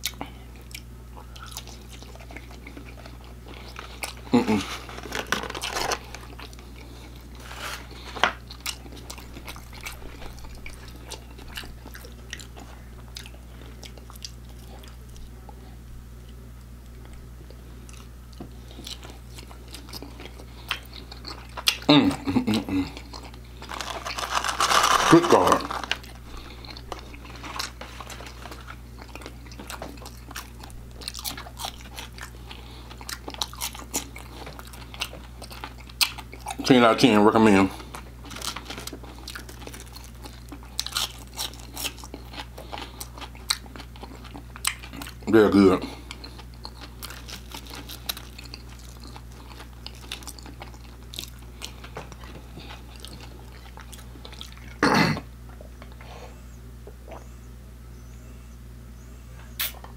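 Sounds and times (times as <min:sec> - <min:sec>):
crunchy chewing: 0:00.0 - 0:15.6, 0:16.2 - 0:54.8
steady low hum: 0:00.0 - 0:59.9
paper box crinkling: 0:04.7 - 0:06.3, 0:23.6 - 0:28.7
plastic cup being peeled open: 0:23.6 - 0:26.0.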